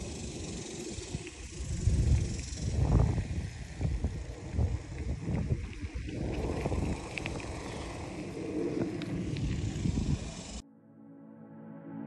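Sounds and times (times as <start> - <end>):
bicycle rolling on asphalt: 0.0 - 10.6
wind buffeting microphone: 0.0 - 10.6.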